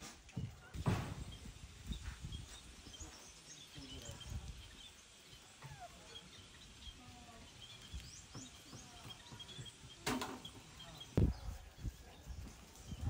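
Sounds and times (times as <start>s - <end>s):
small birds chirping: 0.2s - 13.0s
low thump: 0.8s - 1.4s.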